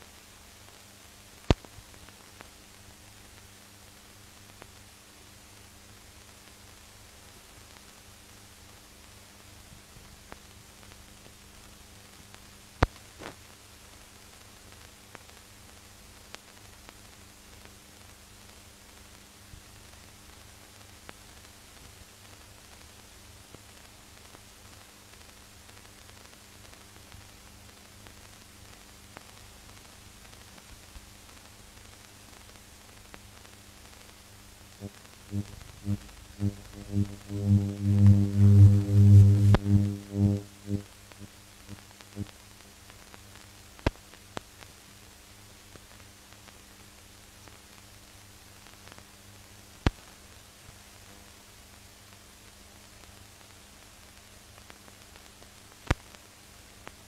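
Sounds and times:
film soundtrack hiss and crackle: 0:00.0 - 0:57.0
low steady hum: 0:32.1 - 0:48.5
scattered clicks: 0:34.8 - 0:40.8
low hum: 0:34.8 - 0:42.3.

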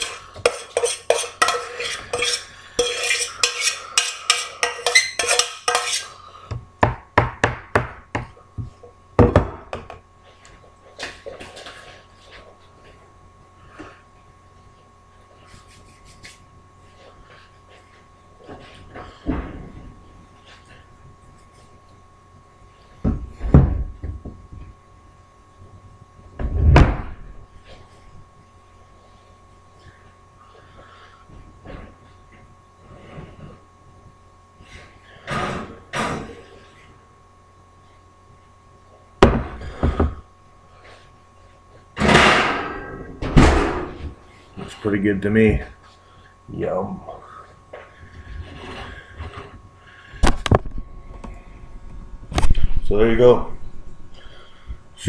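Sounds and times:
dishes and utensils clinking: 0:00.0 - 0:06.1.

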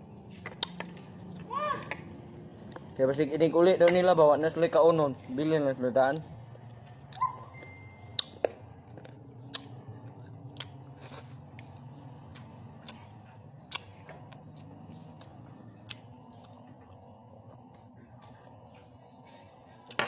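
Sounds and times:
low steady hum: 0:00.0 - 0:20.0
chewing and crunching: 0:06.4 - 0:20.0.

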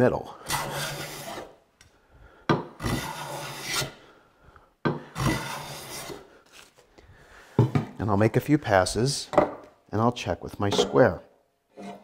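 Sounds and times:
bench plane shaving wood: 0:00.5 - 0:01.6, 0:02.8 - 0:04.0, 0:05.1 - 0:06.3.

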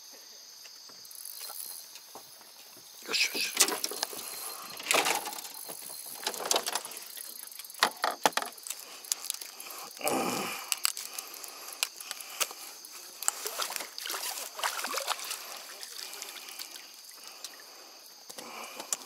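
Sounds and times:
landing net rattling and clattering: 0:03.5 - 0:04.1, 0:04.7 - 0:07.0.

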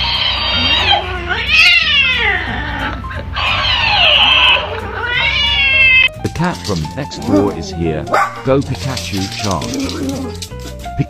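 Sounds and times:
cat yowling: 0:00.4 - 0:06.1, 0:09.6 - 0:10.4.

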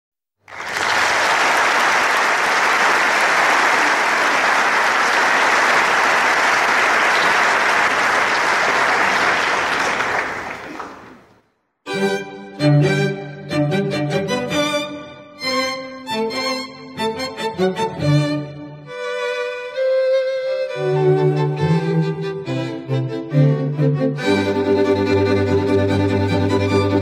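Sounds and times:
audience applauding: 0:00.4 - 0:11.4
string quartet playing: 0:11.9 - 0:27.0.

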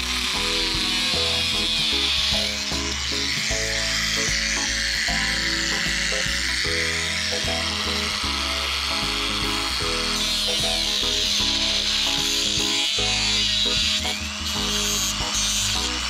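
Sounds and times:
angle grinder cutting metal rail: 0:00.0 - 0:16.0
background music: 0:00.0 - 0:16.0.

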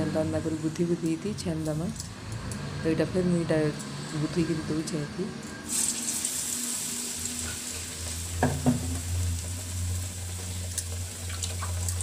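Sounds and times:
deep-frying sizzle in oil: 0:05.6 - 0:12.0.

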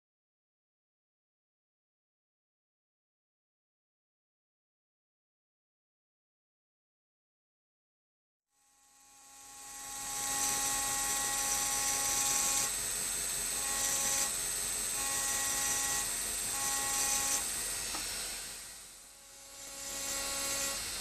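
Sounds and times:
rotary drill grinding glass: 0:08.6 - 0:21.0.

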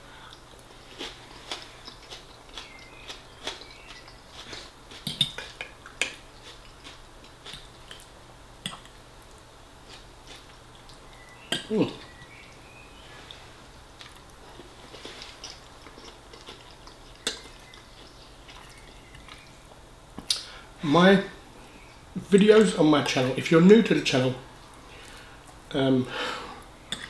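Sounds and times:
chewing and mouth clicks: 0:00.2 - 0:08.1, 0:14.0 - 0:19.6.

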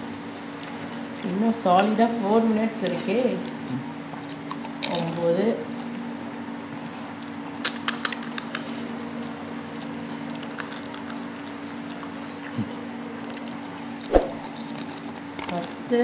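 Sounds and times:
low hum: 0:14.0 - 0:14.7.

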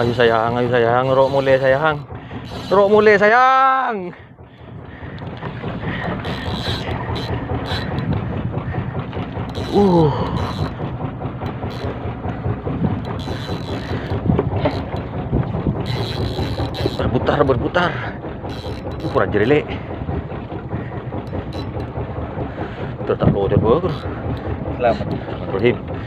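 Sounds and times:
fishing reel clattering: 0:00.0 - 0:04.0, 0:05.2 - 0:08.3, 0:09.2 - 0:12.2, 0:12.8 - 0:17.8, 0:18.4 - 0:19.7, 0:21.2 - 0:22.0, 0:23.8 - 0:25.8
boat engine running: 0:00.0 - 0:26.0.

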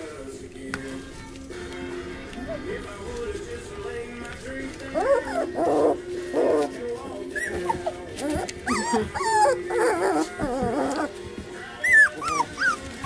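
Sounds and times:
background music: 0:00.0 - 0:13.0
puppies yipping and whining: 0:04.6 - 0:13.0.

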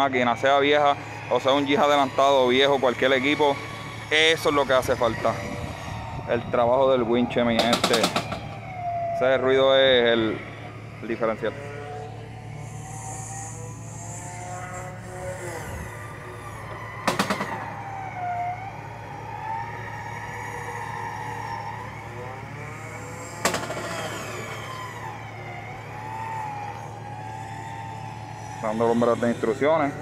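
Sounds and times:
differential whining: 0:00.0 - 0:30.0
low hum: 0:00.0 - 0:30.0.

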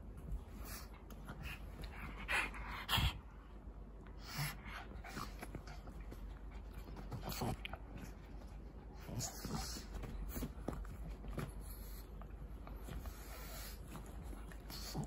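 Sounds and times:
dogs panting: 0:00.3 - 0:03.5, 0:04.1 - 0:15.0.

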